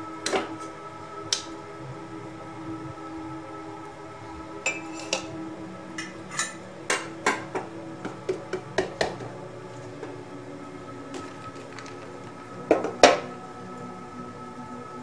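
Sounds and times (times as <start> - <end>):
faint steady hum: 0.0 - 15.0
spoon clinking ceramic mug: 4.7 - 5.3.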